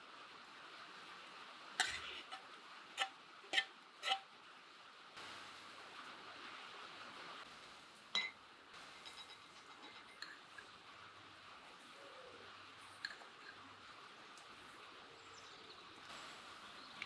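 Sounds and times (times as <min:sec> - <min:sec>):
paste scraped off spoon: 0:03.0 - 0:04.2
spoon clinking against bowl: 0:08.2 - 0:08.4.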